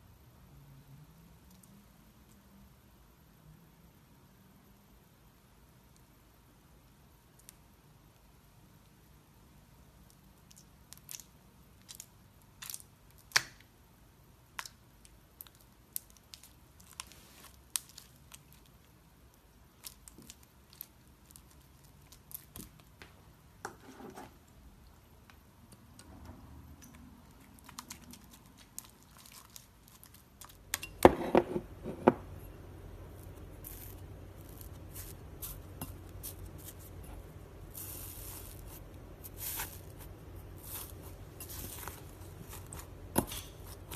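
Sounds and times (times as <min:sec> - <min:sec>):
slime squelching: 0:24.8 - 0:30.8, 0:33.0 - 0:43.9.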